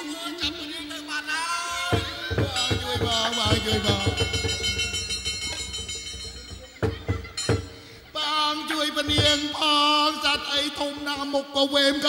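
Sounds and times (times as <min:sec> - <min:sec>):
drum strokes: 0:01.9 - 0:08.2, 0:09.0 - 0:09.8
held instrument tones: 0:01.9 - 0:08.3.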